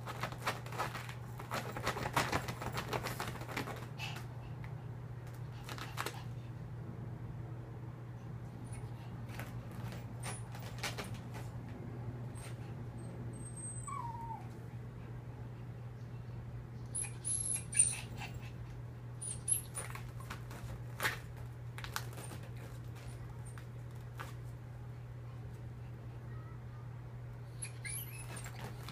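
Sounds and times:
dog scratching at fabric: 0.0s - 4.2s, 27.6s - 28.9s
steady low hum: 0.0s - 28.9s
dog whimpering: 12.4s - 14.6s, 16.9s - 18.6s, 27.5s - 28.9s.

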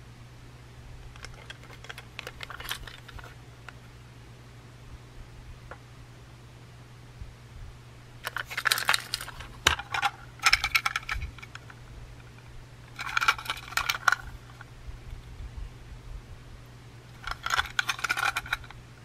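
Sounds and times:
steady low hum: 0.0s - 19.0s
plastic toy train clicking and rattling: 1.2s - 3.4s, 8.2s - 11.8s, 12.9s - 14.6s, 17.2s - 18.8s.

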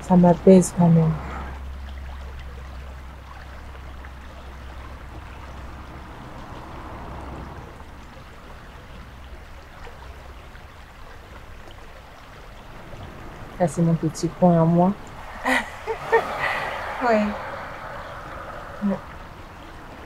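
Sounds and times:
low rumble: 12.2s - 20.0s
outdoor rushing noise: 12.6s - 20.0s.

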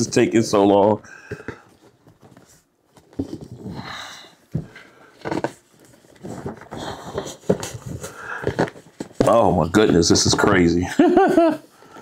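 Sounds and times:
cardboard scraping and rustling: 4.6s - 10.6s.

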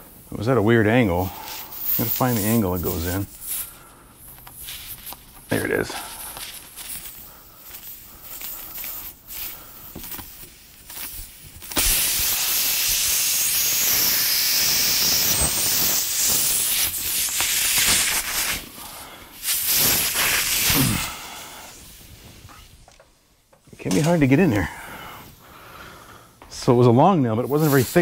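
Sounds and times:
air hissing out of tire: 1.0s - 22.8s, 27.4s - 28.0s.

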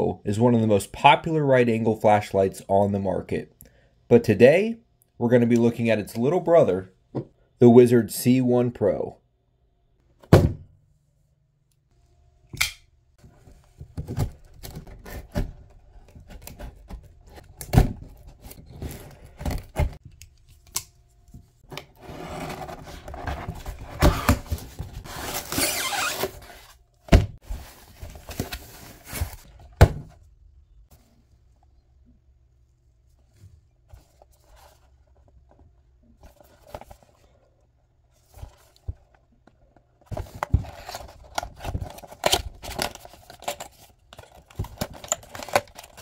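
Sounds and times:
cardboard scraping and rustling: 21.7s - 29.7s.

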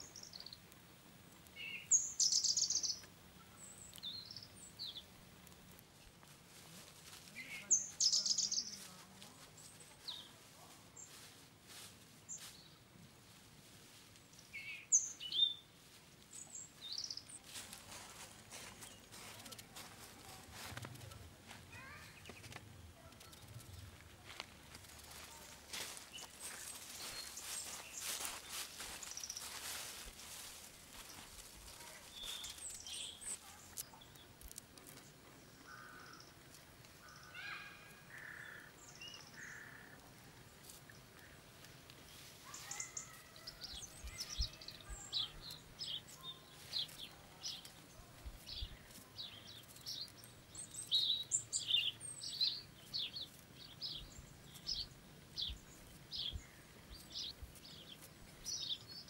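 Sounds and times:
wild birds calling: 1.6s - 5.2s, 23.8s - 34.2s, 35.4s - 40.4s, 42.5s - 47.8s.

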